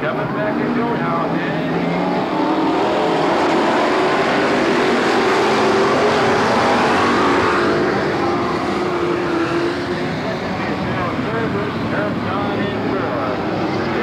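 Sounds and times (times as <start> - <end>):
racing car engines droning: 0.0 - 14.0.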